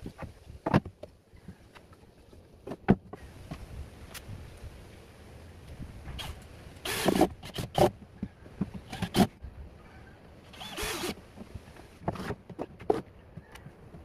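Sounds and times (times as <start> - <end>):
cordless drill driving screws: 6.2 - 7.9, 10.6 - 11.2.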